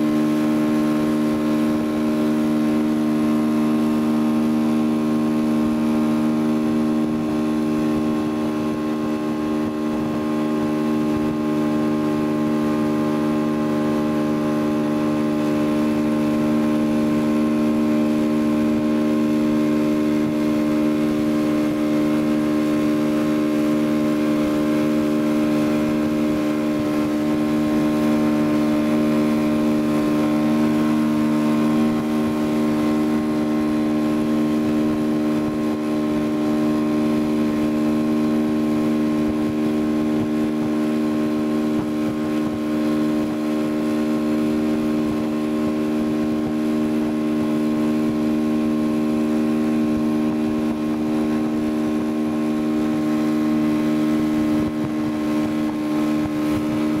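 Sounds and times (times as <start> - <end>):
motorboat engine drone: 0.0 - 57.0
water and wind hiss: 0.0 - 57.0.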